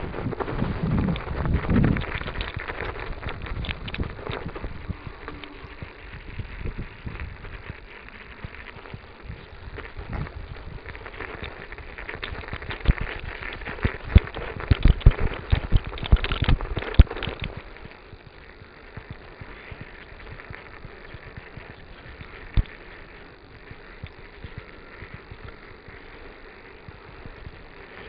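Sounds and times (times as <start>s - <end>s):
bicycle tyres rushing on snow: 0.0s - 28.0s.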